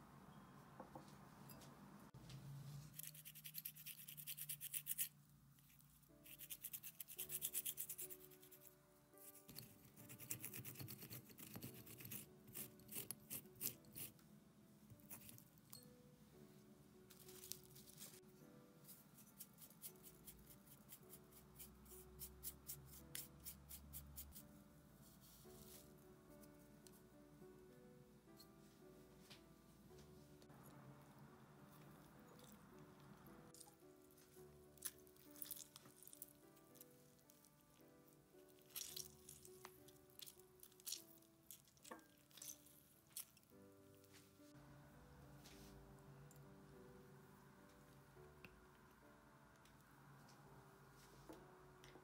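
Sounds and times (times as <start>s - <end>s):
soft background music: 0.0s - 52.0s
pastry brush strokes: 2.1s - 14.2s, 14.9s - 15.6s, 17.0s - 26.8s, 45.4s - 46.0s.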